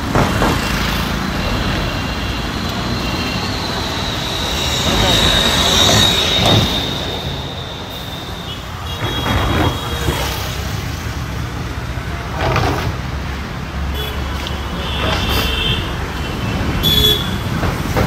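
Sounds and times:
city traffic passing: 0.0s - 18.0s
high squeal: 1.3s - 10.3s
scattered voices: 2.8s - 8.4s.

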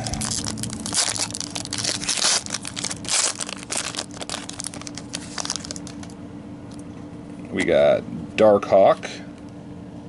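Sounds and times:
foil wrapper tearing and crinkling: 0.0s - 6.2s.

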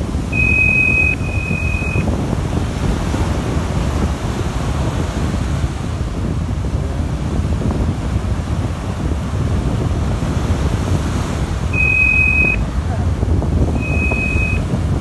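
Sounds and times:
surf breaking on beach: 0.0s - 15.0s
wind buffeting microphone: 0.0s - 15.0s.

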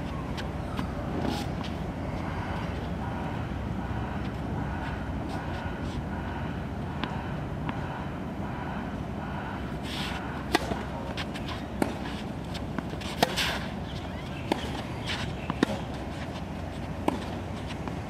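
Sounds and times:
steady background noise: 0.0s - 18.0s
racket swish: 9.8s - 16.4s.

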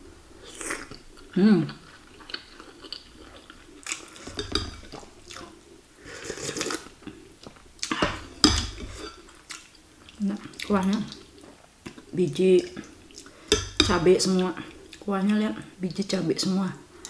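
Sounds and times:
slurping broth: 0.4s - 9.2s
cutlery clinking on ceramic bowl: 4.3s - 4.9s.

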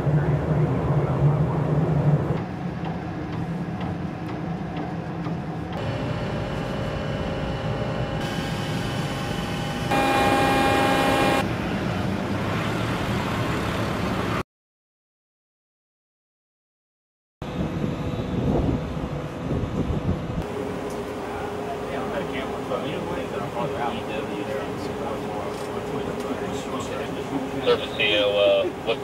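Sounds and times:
engine and machinery noise: 0.0s - 14.4s, 17.4s - 29.0s
multi-tone whine: 5.8s - 11.5s.

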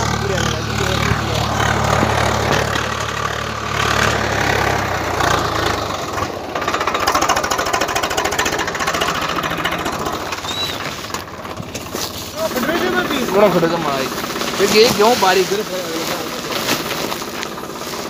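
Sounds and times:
fast even clattering: 0.0s - 18.0s
tractor engine under load: 0.0s - 18.0s.

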